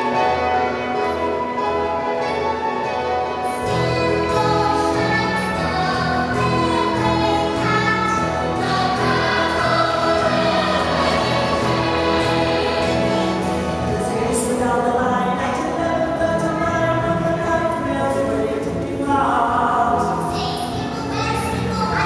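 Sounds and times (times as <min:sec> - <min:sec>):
orchestral music: 0:00.0 - 0:22.0
choir singing: 0:03.4 - 0:14.5.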